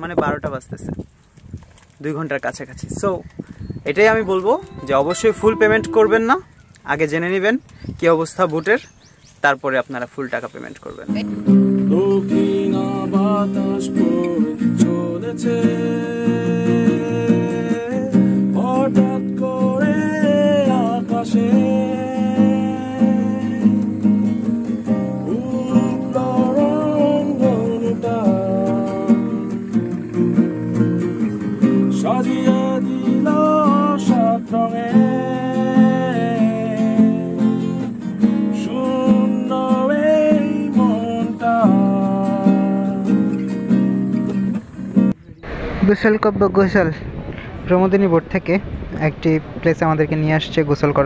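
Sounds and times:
acoustic guitar music: 2.9 - 9.4, 10.3 - 51.0
gliding melody line: 3.9 - 6.8.

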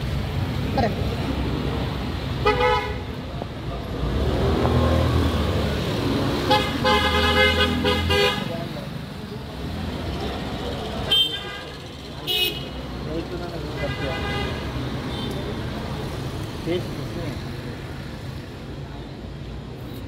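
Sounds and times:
passing vehicle engines: 0.0 - 20.0
vehicle horns honking: 2.4 - 3.1, 6.4 - 8.6, 11.0 - 12.8.

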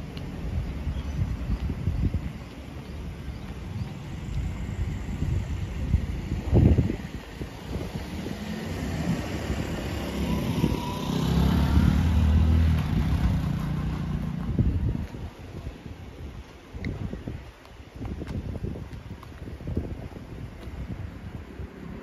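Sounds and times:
wind buffeting microphone: 0.0 - 22.0
car passing: 4.1 - 14.9.

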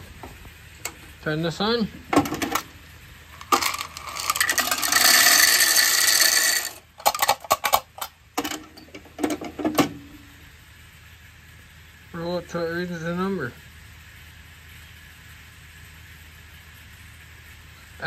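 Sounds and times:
corn kernels rattling into metal: 2.0 - 9.9.

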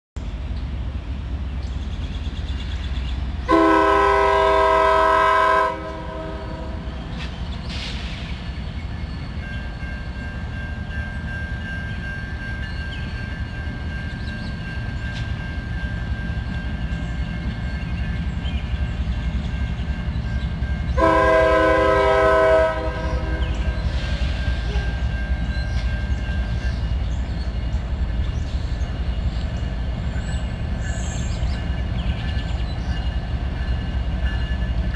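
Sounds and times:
train rumble: 0.2 - 34.9
locomotive air horn blasts: 3.5 - 6.9, 21.0 - 23.7
crossing warning bell ringing: 8.6 - 34.9.

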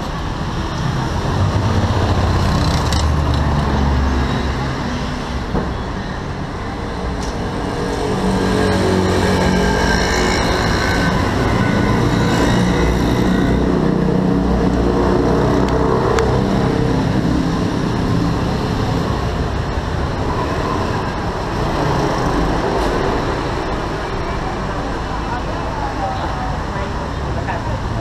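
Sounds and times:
engine whine: 0.0 - 27.0
busy road traffic: 0.0 - 28.0.

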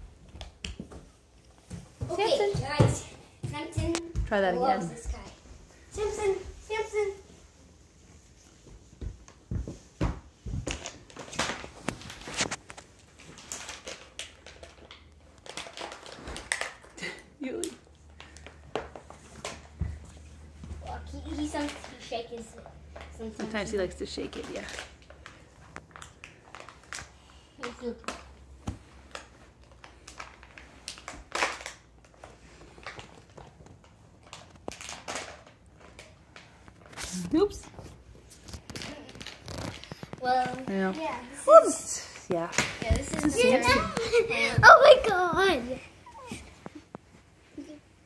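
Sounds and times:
scratchy rustling and crinkling: 1.5 - 16.9, 28.5 - 48.0.

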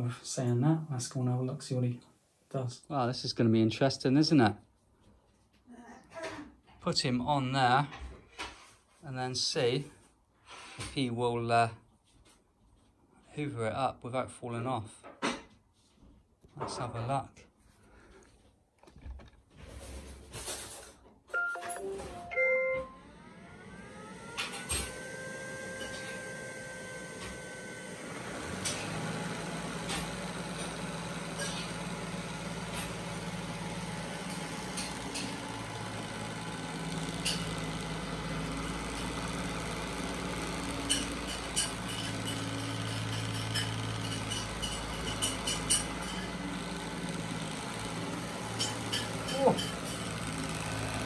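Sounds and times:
robot vacuum motor hum: 21.9 - 51.0
sharp clicks and ticks: 39.0 - 50.9.

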